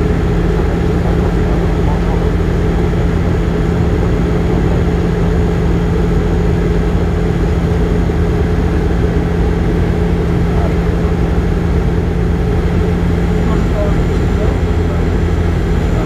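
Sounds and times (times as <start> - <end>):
propeller plane cabin drone: 0.0 - 16.0.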